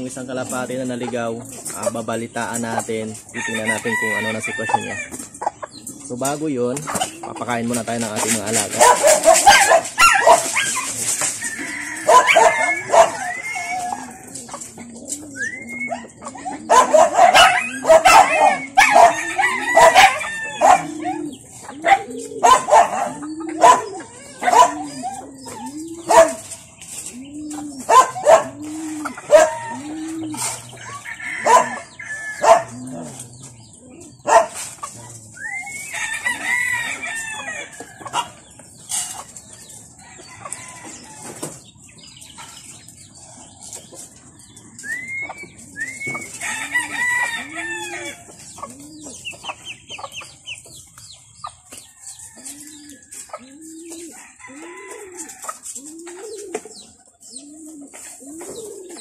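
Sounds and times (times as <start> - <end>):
pigeons cooing: 0.0 - 59.0
rooster crowing: 3.4 - 5.1, 11.4 - 14.4, 16.7 - 21.3, 28.3 - 33.1, 35.6 - 38.3, 46.0 - 48.2, 54.0 - 55.6
dog barking: 8.8 - 10.8, 12.1 - 13.2, 16.6 - 19.2, 19.8 - 21.0, 21.8 - 25.0, 26.1 - 26.4, 27.9 - 28.6, 29.3 - 29.7, 31.4 - 31.8, 32.4 - 32.8, 34.2 - 34.6.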